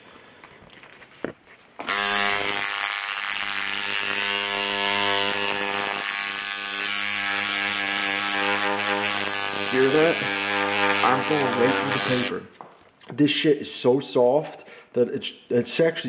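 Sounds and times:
tattoo machine buzzing: 1.8 - 12.5.

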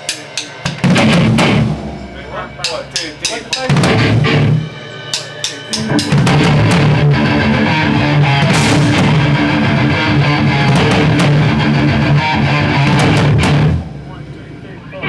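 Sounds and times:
drum kit: 0.0 - 14.3
cymbal hits: 0.0 - 14.6
bass guitar: 0.8 - 4.9, 5.6 - 15.0
electric guitar: 3.6 - 4.8, 5.7 - 15.0.

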